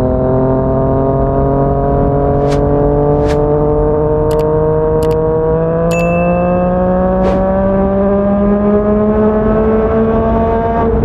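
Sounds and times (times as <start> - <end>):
motorcycle engine accelerating: 0.0 - 11.0
short clicks: 4.3 - 5.2.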